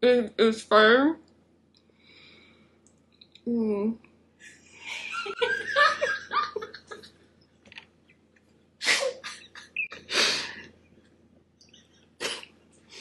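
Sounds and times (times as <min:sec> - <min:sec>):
stifled giggles: 0:04.9 - 0:07.2, 0:09.0 - 0:10.1.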